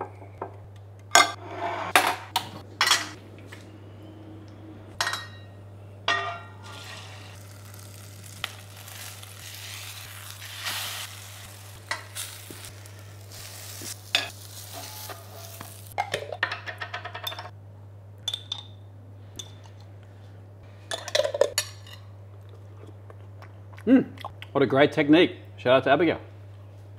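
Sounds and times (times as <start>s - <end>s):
omelette sizzling in oil: 6.6s - 16.0s.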